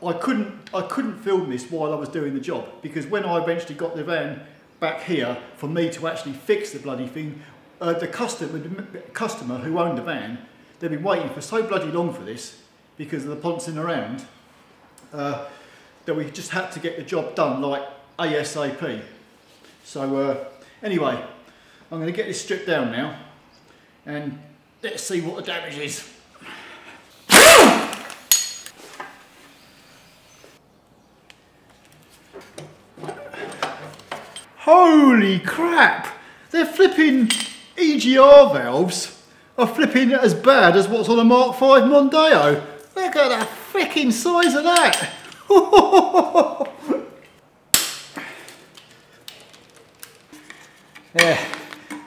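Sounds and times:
impact wrench burst: 27.3 - 28.7
sharp metallic clack: 27.3 - 28.8
metal-on-metal handling: 27.9 - 29.1, 32.4 - 34.5, 37.2 - 37.8, 44.4 - 45.4, 47.7 - 52.0
metallic clink with a ring: 28.3 - 28.8
man's voice: 34.6 - 47.0.

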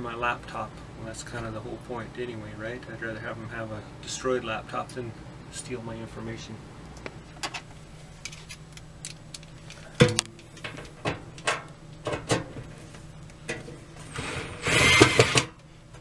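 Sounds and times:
cordless drill driving screw: 14.1 - 15.5.

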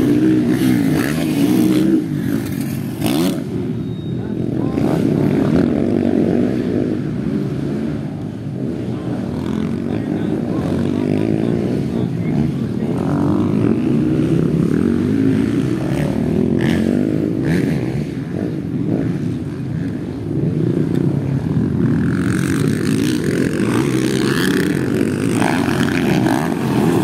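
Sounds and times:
dirt bike engines droning: 0.0 - 27.0
higher rough engine: 0.0 - 27.0.

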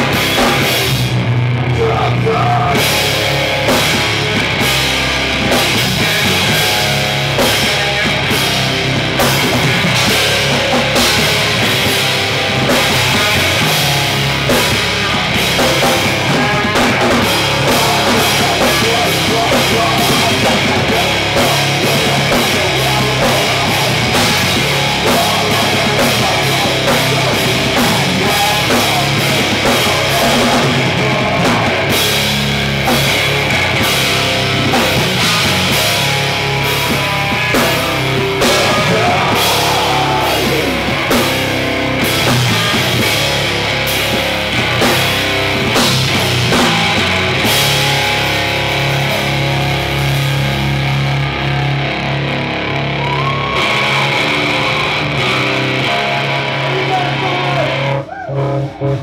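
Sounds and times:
fast drum kit: 0.0 - 51.9
bass guitar: 0.0 - 59.0
distorted electric guitars: 0.0 - 59.0
person singing into microphone: 1.7 - 2.9, 16.2 - 31.8, 38.4 - 41.0.

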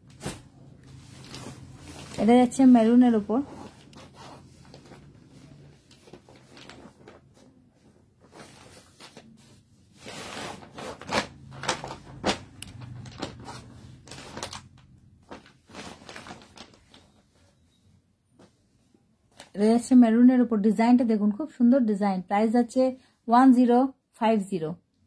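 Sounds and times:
plastic packet rustling: 5.8 - 7.4, 10.1 - 17.2.

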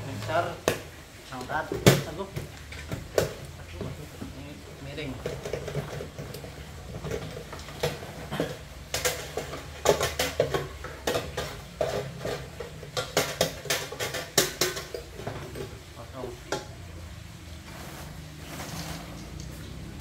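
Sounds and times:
metal pot clattering and rattling: 0.0 - 16.8
popcorn pouring out: 17.5 - 20.0.

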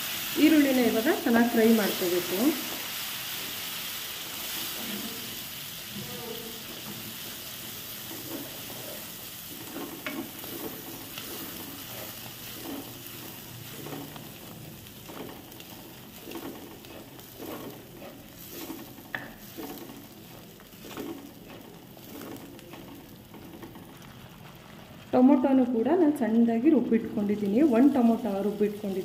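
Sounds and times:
onion paste sizzling in oil: 0.0 - 29.0
wooden spatula scraping pot: 6.5 - 24.8.

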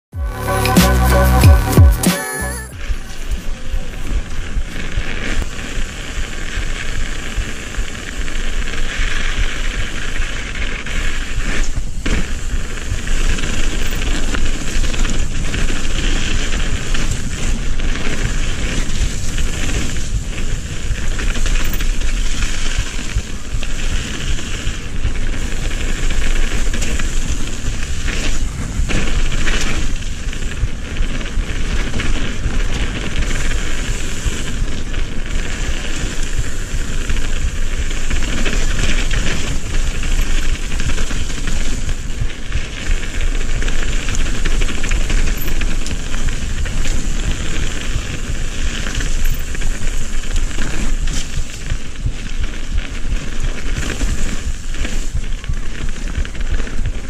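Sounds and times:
wind rush over microphone: 2.7 - 57.0
bike knocks and rattles: 37.9 - 55.0.

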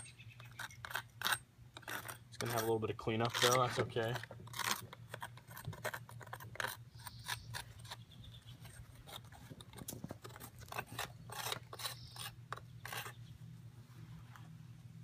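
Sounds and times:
steady low hum: 0.0 - 15.0
sand scraping and rubbing: 0.4 - 9.5.

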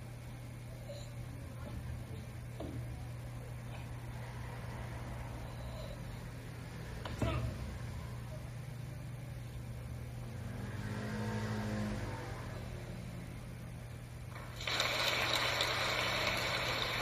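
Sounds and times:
steady low hum: 0.0 - 17.0
audience applauding on television: 14.3 - 17.0.

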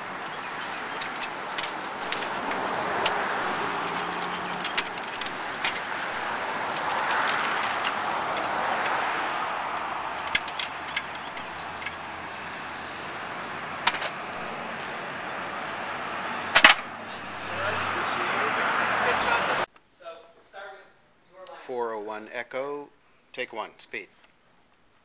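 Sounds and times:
road traffic noise: 0.0 - 19.7.

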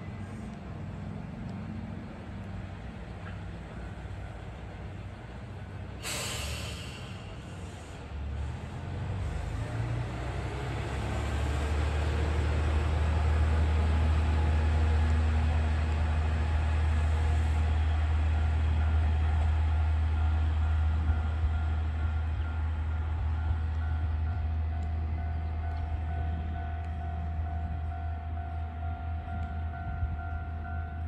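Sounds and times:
diesel engine drone: 0.0 - 31.0
air hiss: 6.0 - 8.0.

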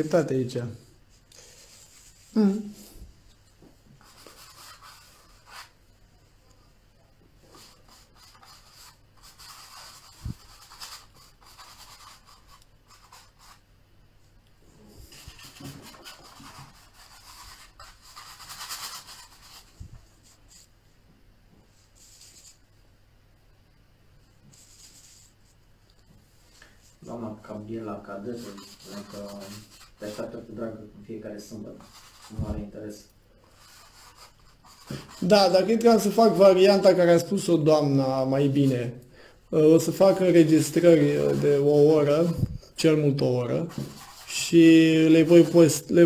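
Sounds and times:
paintbrush scratching on canvas: 1.4 - 3.0, 3.9 - 5.8, 7.4 - 13.7, 15.0 - 20.7, 21.7 - 22.7, 24.4 - 25.6, 26.5 - 38.9, 39.7 - 46.0.

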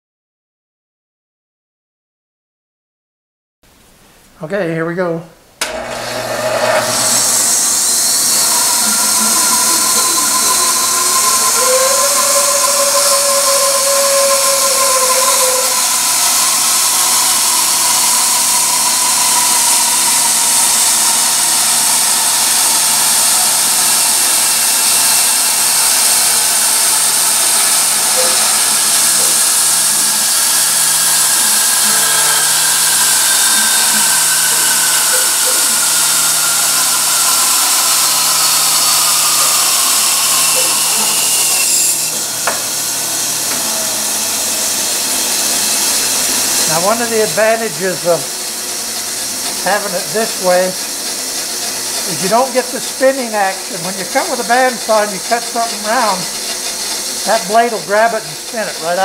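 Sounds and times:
faint blade whine: 5.6 - 51.0
bandsaw cutting wood: 5.6 - 59.0.

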